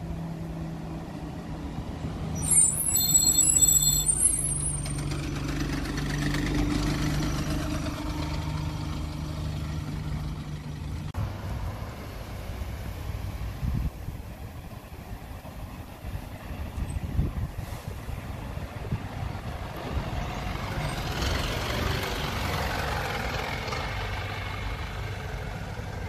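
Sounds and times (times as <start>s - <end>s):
bus engine running: 0.0s - 26.0s
bus rumble and hiss: 0.0s - 26.0s
high-pitched brake squeal: 2.3s - 5.2s.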